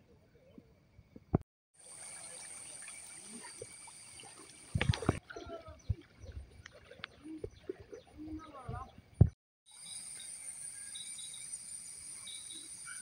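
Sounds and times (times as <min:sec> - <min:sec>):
water sloshing and splashing: 0:01.9 - 0:08.9.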